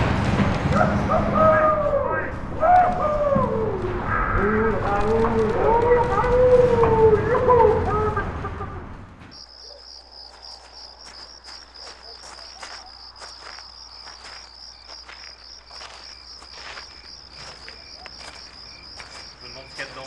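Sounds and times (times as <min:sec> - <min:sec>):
cricket chirping: 0:09.2 - 0:20.0.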